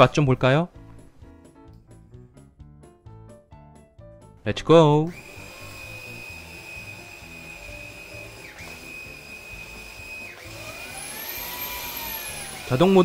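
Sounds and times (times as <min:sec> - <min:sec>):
cordless vacuum motor whine: 0:05.1 - 0:13.0.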